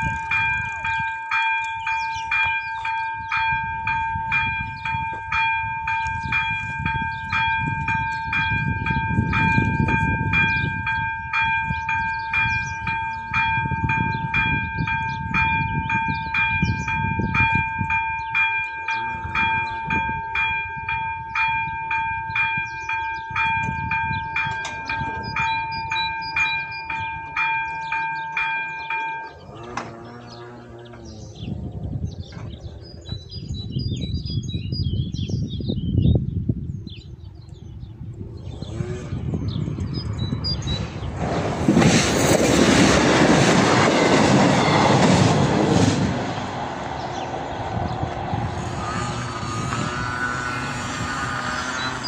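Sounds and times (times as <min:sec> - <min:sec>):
level crossing bell dinging: 0:00.3 - 0:29.7.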